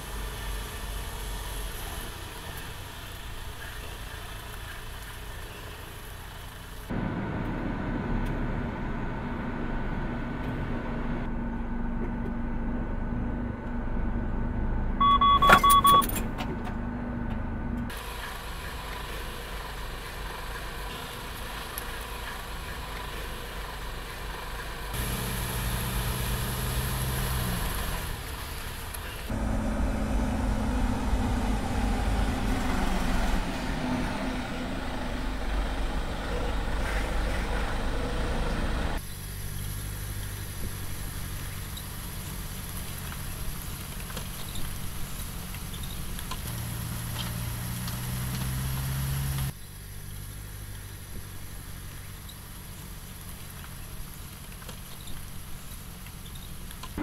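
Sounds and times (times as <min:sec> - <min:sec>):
truck engine humming: 0:00.0 - 0:57.0
short electronic beep: 0:15.0 - 0:16.2.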